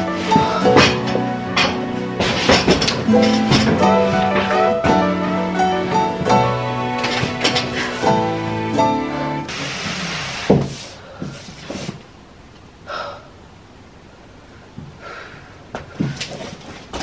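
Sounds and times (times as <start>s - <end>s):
breaths of effort: 0.2s - 1.0s, 15.0s - 16.3s.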